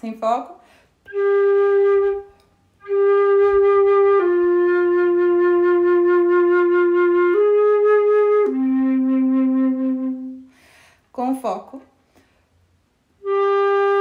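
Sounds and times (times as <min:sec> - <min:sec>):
flute sustained notes: 0:01.0 - 0:10.5, 0:13.2 - 0:14.0
flute player breath: 0:10.4 - 0:11.1.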